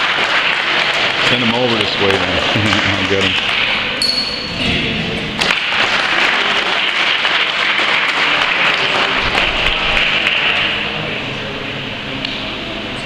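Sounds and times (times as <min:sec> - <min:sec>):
audience applauding: 0:00.0 - 0:03.7, 0:05.4 - 0:10.9.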